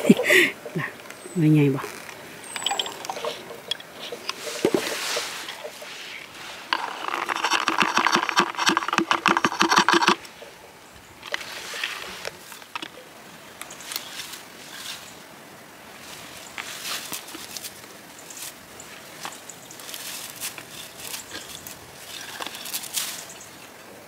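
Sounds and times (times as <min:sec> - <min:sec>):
bushes rustling: 0:00.0 - 0:24.0
berries rattling into plastic container: 0:06.7 - 0:10.2.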